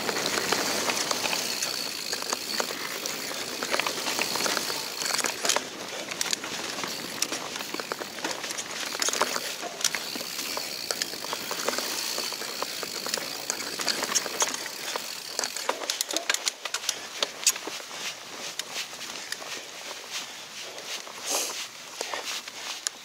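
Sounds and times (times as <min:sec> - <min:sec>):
bike rattling and clicking: 0:00.0 - 0:23.0
bike tyres on dirt: 0:00.0 - 0:23.0.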